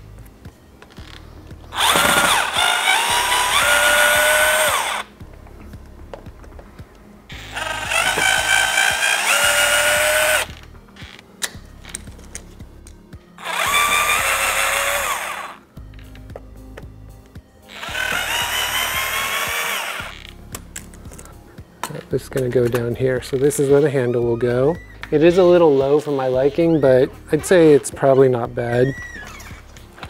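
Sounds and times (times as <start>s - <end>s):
cordless drill motor whine: 1.7s - 5.1s, 7.3s - 10.6s, 13.4s - 15.6s, 17.7s - 20.4s.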